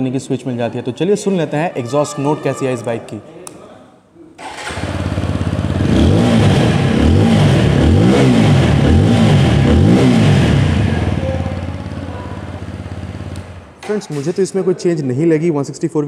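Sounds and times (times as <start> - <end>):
motorcycle engine revving: 4.4 - 13.8.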